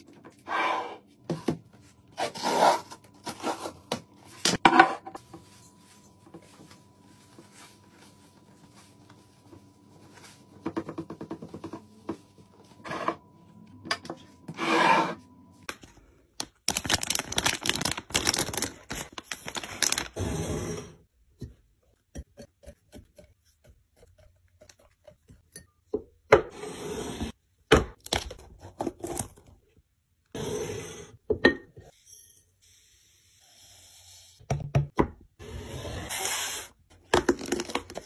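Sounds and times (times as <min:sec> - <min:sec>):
plastic bag crinkling: 0:16.4 - 0:20.2.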